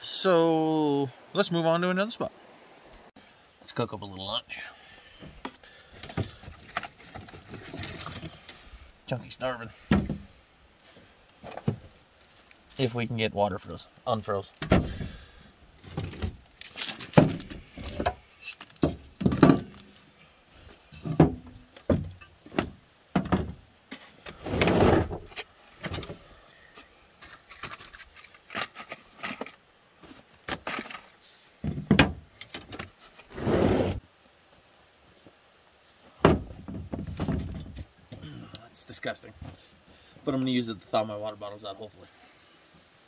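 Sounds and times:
rustling: 5.2 - 9.1, 9.7 - 13.8, 14.4 - 34.0.

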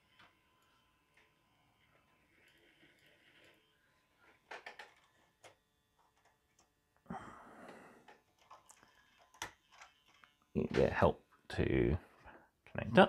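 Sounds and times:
model train clicks and taps: 4.4 - 6.7
soft breathy rush: 7.1 - 8.1.

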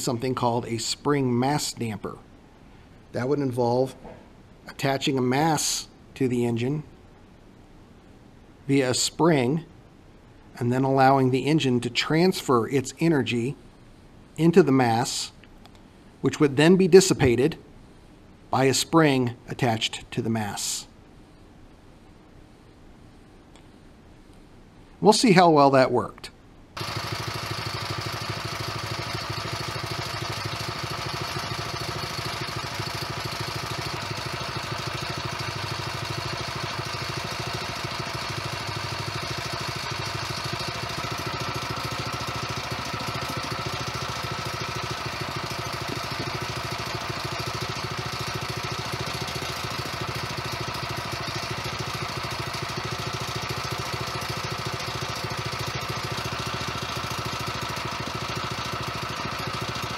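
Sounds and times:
small engine running steadily: 26.8 - 59.9.

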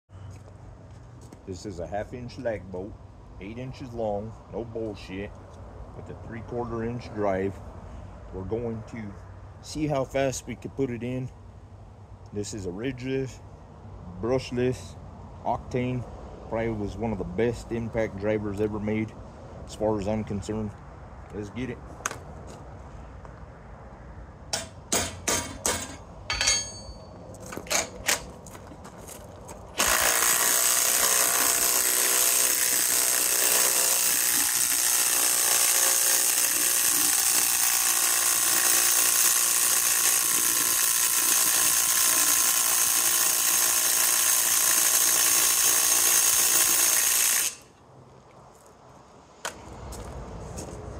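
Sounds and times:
impact driver hammering: 24.5 - 27.0, 29.8 - 47.6
sharp knocks and clicks: 24.5 - 28.8.

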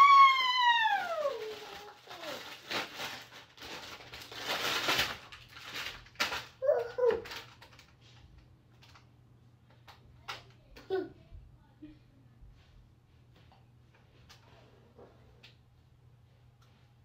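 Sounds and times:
woman whooping: 0.0 - 1.9
plastic bag crinkling: 0.0 - 9.0.

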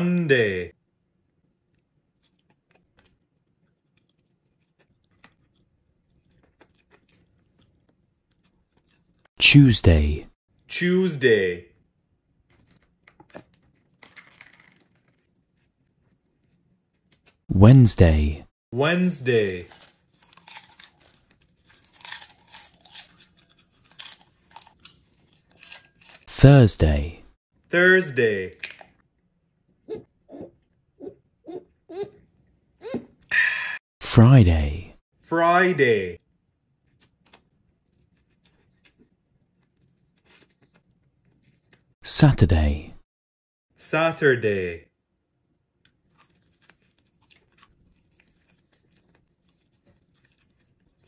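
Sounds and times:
soft wet chewing: 1.3 - 9.3, 12.4 - 17.4, 19.5 - 26.3, 36.2 - 42.0, 45.7 - 51.0.

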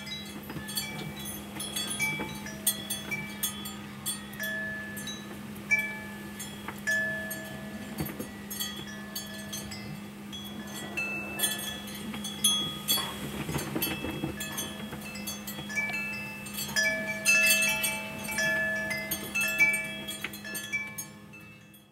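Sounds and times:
low steady hum: 0.0 - 21.9
wind chimes ringing: 0.0 - 21.9.

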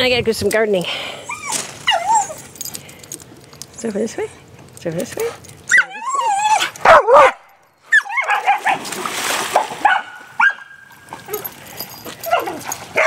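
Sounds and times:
dog yipping and whining: 1.3 - 2.6, 5.7 - 8.8, 12.2 - 13.0
splash in water: 8.3 - 10.4.

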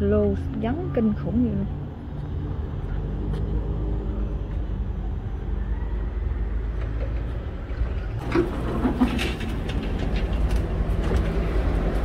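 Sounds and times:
sharp clicks and knocks: 8.2 - 12.0.

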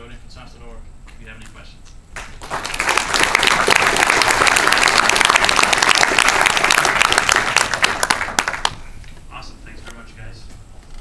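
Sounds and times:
audience applauding: 2.2 - 8.8.

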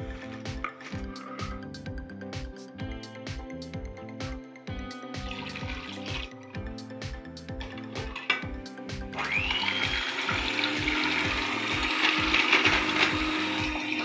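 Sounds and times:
electric hand mixer whirring: 5.3 - 6.3, 7.6 - 14.0.

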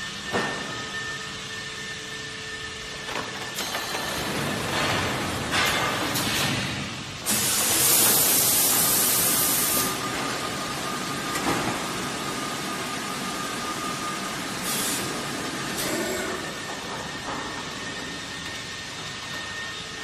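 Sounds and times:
vacuum forming machine running: 0.0 - 20.0
air hissing: 7.2 - 10.0, 14.6 - 15.2.

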